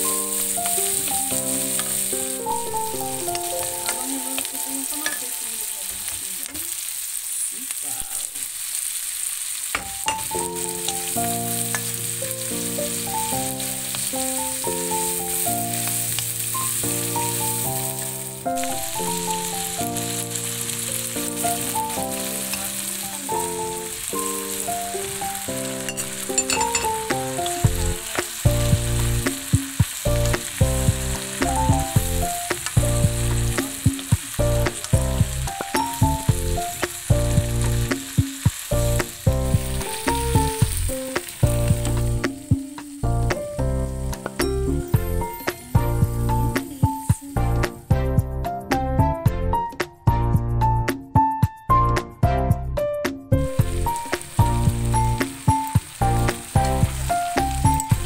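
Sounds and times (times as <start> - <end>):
background music: 0.0 - 6.1, 9.9 - 58.0
vegetables sizzling in a wok: 0.0 - 49.1, 53.4 - 58.0
low regular beat: 26.9 - 58.0.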